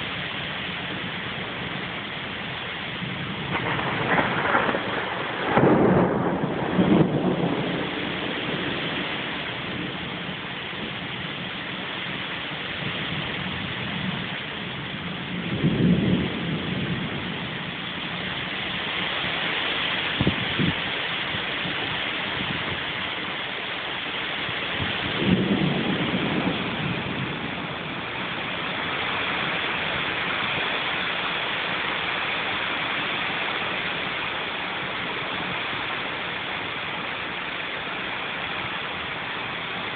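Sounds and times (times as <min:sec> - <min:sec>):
heavy rain: 0:00.0 - 0:39.9
low rolls of thunder: 0:01.0 - 0:19.5, 0:24.4 - 0:37.9
sharp thunder crack: 0:03.1 - 0:09.9, 0:24.8 - 0:28.8.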